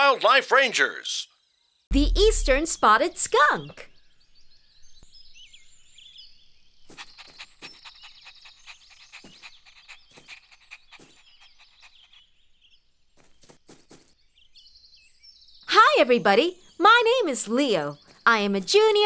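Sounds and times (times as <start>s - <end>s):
birds chirping: 1.4s - 19.0s
short sharp sounds: 1.9s - 2.8s.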